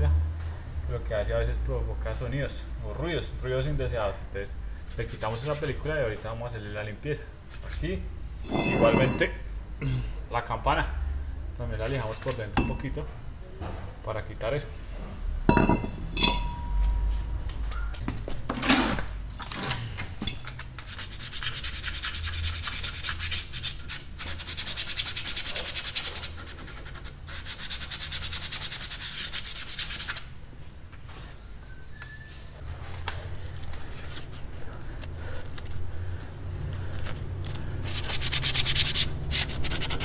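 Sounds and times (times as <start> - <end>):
sandpaper rubbing by hand: 4.8 - 5.8, 20.8 - 30.3, 37.8 - 40.0.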